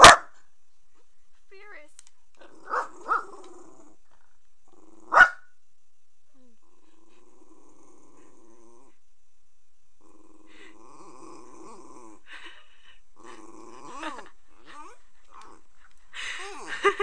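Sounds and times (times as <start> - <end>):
sharp dog bark: 0.0 - 0.3
dog growling low: 2.4 - 5.3, 6.4 - 9.0, 10.0 - 17.0.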